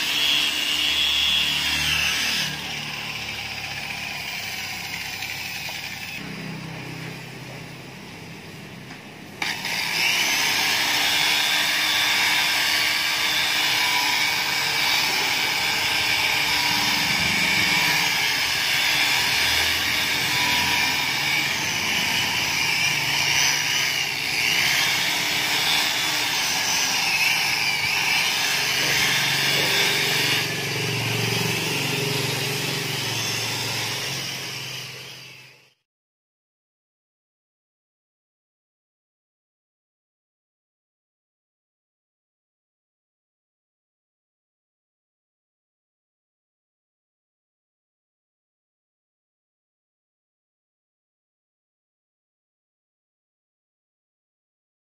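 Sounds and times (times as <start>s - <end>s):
electric car polisher whining: 0.0s - 35.8s.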